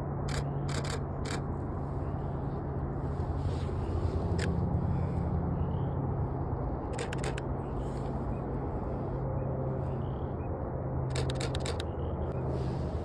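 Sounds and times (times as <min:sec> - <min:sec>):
low background rumble: 0:00.0 - 0:13.0
camera shutter burst clicks: 0:00.3 - 0:01.4, 0:07.0 - 0:07.4, 0:11.1 - 0:11.9.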